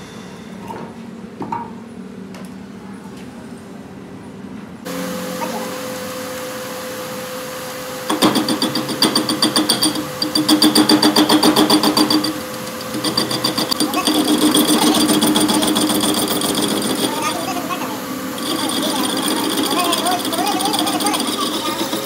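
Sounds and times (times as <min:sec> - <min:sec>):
lathe humming: 0:04.9 - 0:22.0
lathe tool chattering: 0:08.0 - 0:22.0.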